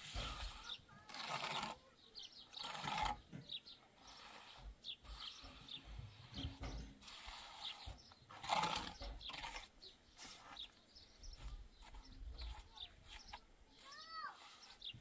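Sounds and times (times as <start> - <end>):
birds chirping: 0.0 - 15.0
dull thumps: 5.4 - 7.1.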